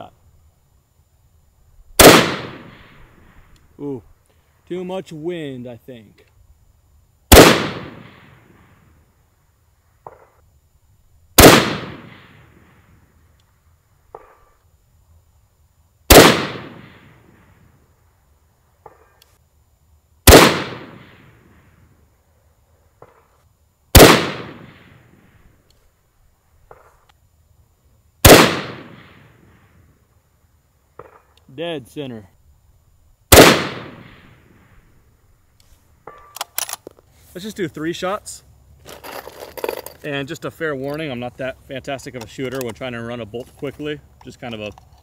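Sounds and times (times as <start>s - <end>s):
rifle shots with echo: 2.0s - 3.2s, 7.3s - 8.7s, 11.4s - 12.8s, 16.1s - 17.4s, 20.2s - 21.6s, 23.9s - 25.1s, 28.2s - 29.6s, 33.3s - 34.5s.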